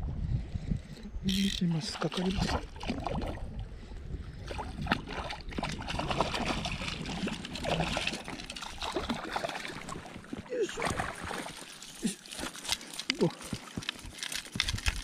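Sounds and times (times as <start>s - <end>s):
fish splashing in water: 4.5s - 14.4s.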